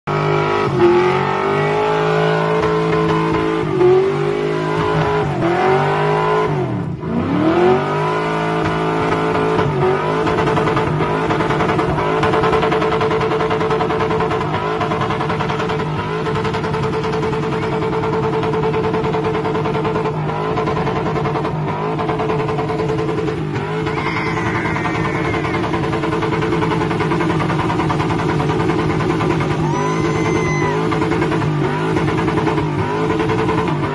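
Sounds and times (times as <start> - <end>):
car engine revving: 0.1 - 33.9
tyres squealing: 29.6 - 31.0.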